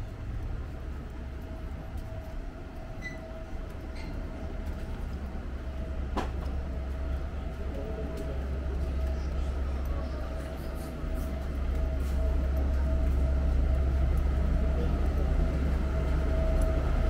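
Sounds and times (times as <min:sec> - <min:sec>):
low mechanical rumble: 0:00.0 - 0:17.0.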